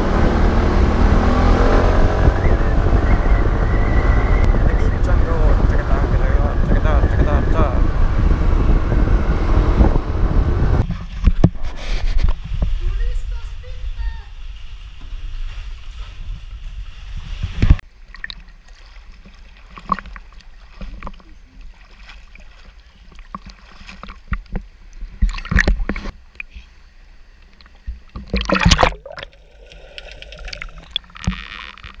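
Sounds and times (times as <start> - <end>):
water sloshing and splashing: 16.9 - 26.6, 27.4 - 32.0.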